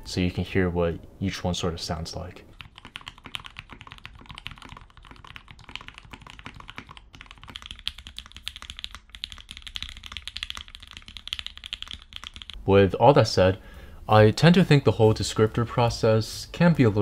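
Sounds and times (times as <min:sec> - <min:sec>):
typing on mechanical keyboard: 0:02.6 - 0:12.6.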